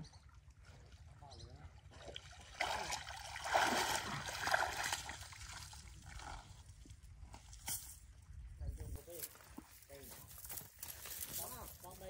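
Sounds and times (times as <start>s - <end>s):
people wading through water: 0.0s - 7.6s.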